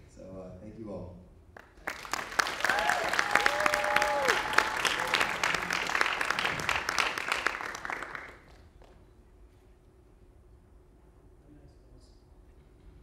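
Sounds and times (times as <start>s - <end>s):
audience applauding: 1.6s - 9.0s.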